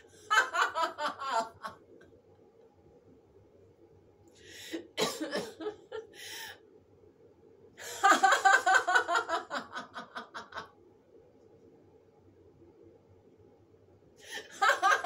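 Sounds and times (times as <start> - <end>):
woman laughing: 0.2 - 1.8, 5.0 - 6.2, 7.8 - 10.7, 14.4 - 15.0.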